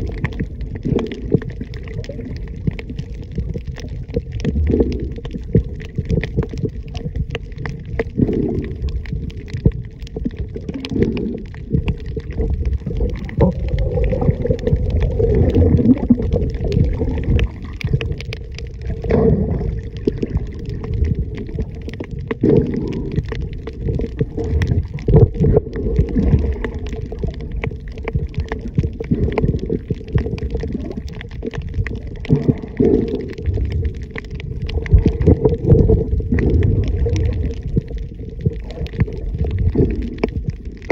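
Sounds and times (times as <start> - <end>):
underwater rumbling and sloshing: 0.0 - 40.9.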